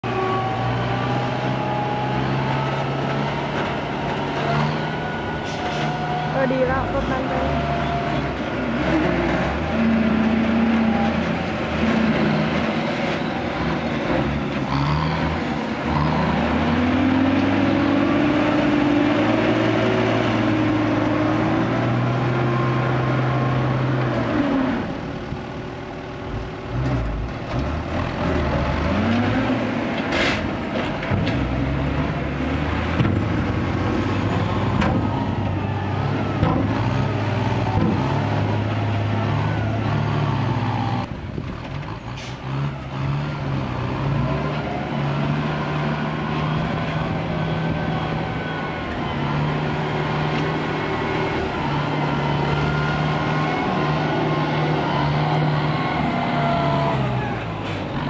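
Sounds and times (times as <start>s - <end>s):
diesel truck engine revving: 0.0s - 58.0s.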